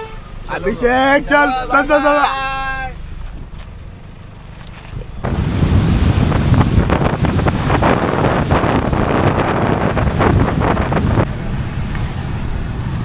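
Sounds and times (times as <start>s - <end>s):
wind buffeting microphone: 4.8s - 13.0s.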